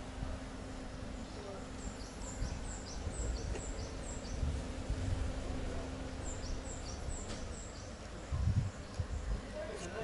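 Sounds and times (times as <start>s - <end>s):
low outdoor rumble: 0.0s - 10.0s
bird chirping: 1.2s - 4.5s, 6.1s - 8.0s.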